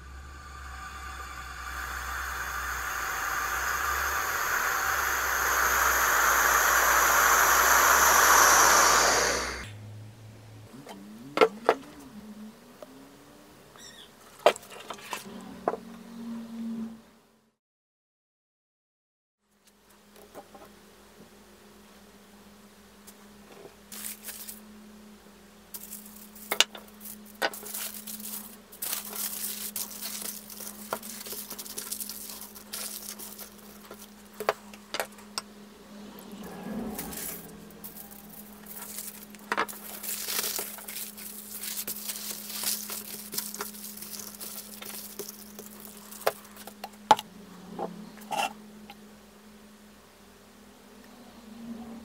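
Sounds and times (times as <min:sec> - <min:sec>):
low hum: 0:00.0 - 0:13.4, 0:27.0 - 0:49.8
aluminium foil crinkling: 0:23.9 - 0:24.6, 0:25.7 - 0:35.2, 0:37.0 - 0:46.8.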